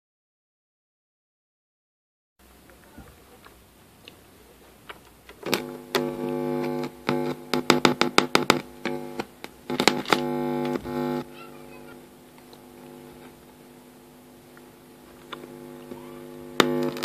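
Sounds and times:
speaker buzzing hum: 0:02.4 - 0:17.0
crackles and clicks from plug: 0:03.4 - 0:11.2, 0:12.3 - 0:17.0.

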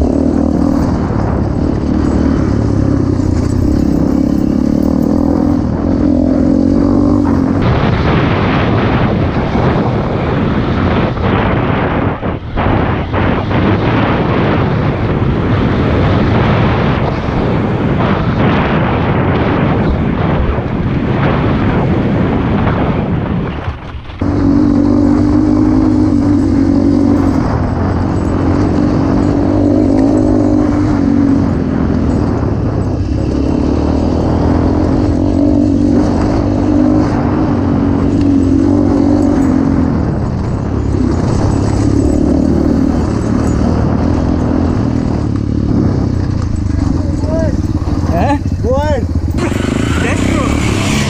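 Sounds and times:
motorcycle engine running: 0:00.0 - 0:51.0
loud rushing noise: 0:45.2 - 0:51.0.

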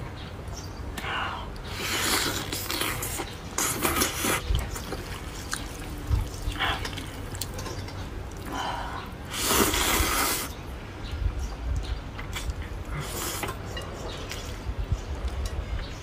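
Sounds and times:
quiet chewing: 0:01.0 - 0:10.6, 0:11.7 - 0:15.9
person slurping noodles: 0:01.7 - 0:04.4, 0:09.3 - 0:10.6.

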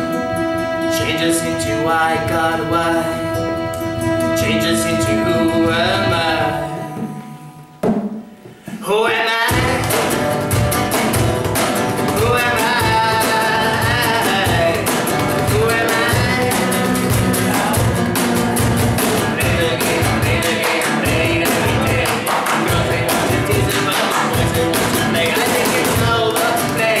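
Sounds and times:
man singing: 0:00.0 - 0:07.5, 0:08.7 - 0:11.0, 0:11.6 - 0:27.0
violin: 0:00.0 - 0:07.8
cajon beat: 0:00.0 - 0:27.0
strummed acoustic guitar: 0:00.0 - 0:27.0.

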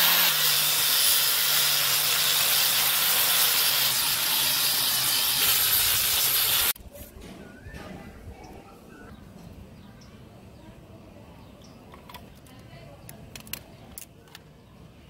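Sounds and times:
angle grinder sanding wood: 0:00.0 - 0:06.8.

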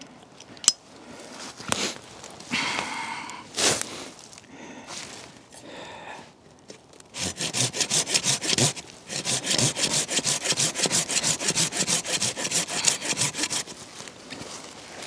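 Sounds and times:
hand saw cutting wood: 0:07.1 - 0:13.8.

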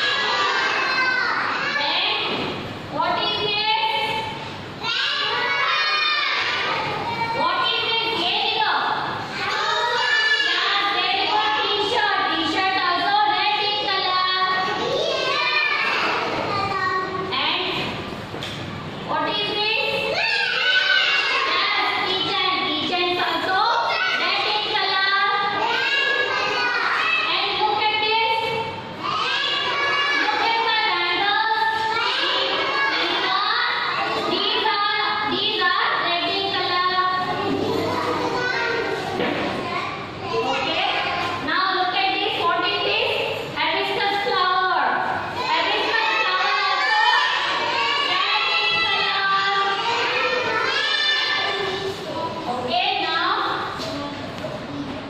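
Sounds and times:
children singing together: 0:25.6 - 0:27.3, 0:29.0 - 0:30.4, 0:31.8 - 0:34.4, 0:45.3 - 0:52.0.

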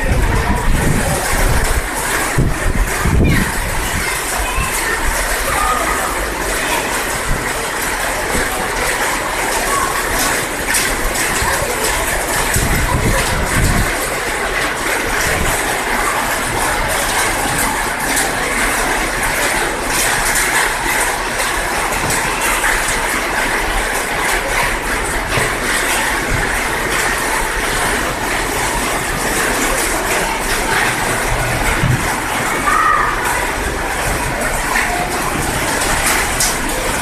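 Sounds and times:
steady rain falling: 0:00.0 - 0:37.0.

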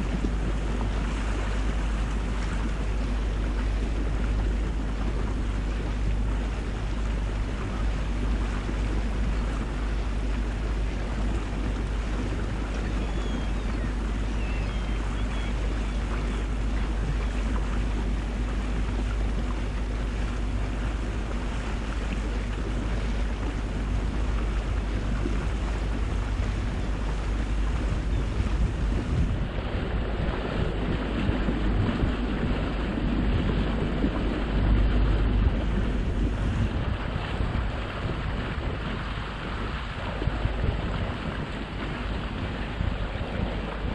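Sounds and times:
motorboat engine drone: 0:00.0 - 0:43.9
rushing water: 0:00.0 - 0:43.9
wind buffeting microphone: 0:00.0 - 0:43.9.

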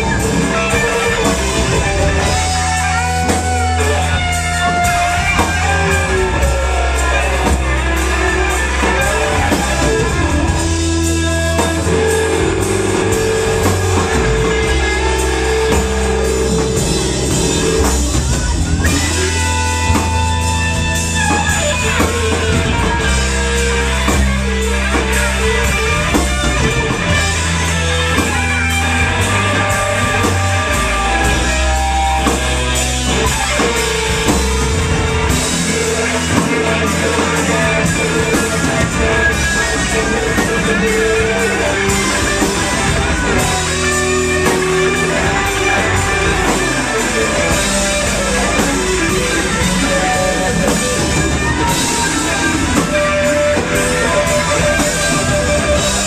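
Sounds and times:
drums: 0:00.0 - 0:56.0
electric guitars: 0:00.0 - 0:56.0
heavy bass guitar notes: 0:00.0 - 0:56.0.

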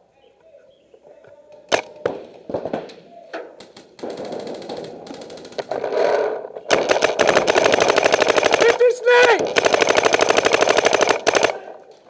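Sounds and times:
rapid paintball marker fire: 0:03.6 - 0:11.7.

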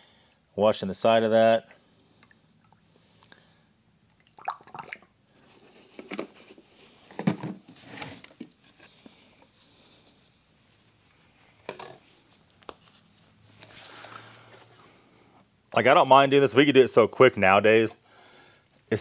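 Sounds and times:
plastic jugs knocking and rustling: 0:05.9 - 0:08.6.

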